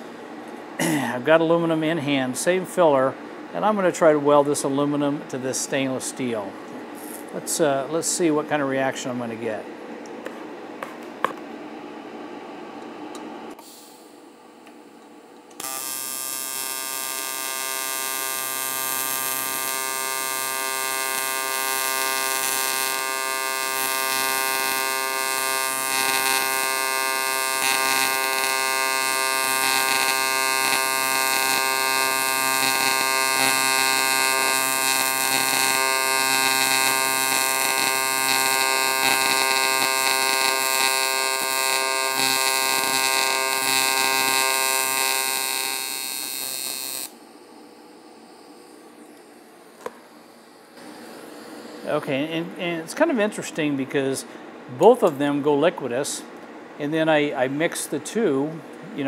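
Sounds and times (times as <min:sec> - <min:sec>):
welding arc buzzing: 0:13.5 - 0:51.8.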